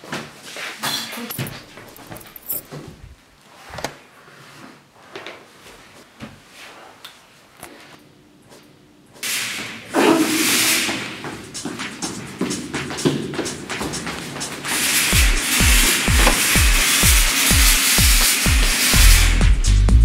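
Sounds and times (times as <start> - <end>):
loud scuffing hiss: 9.2 - 19.4.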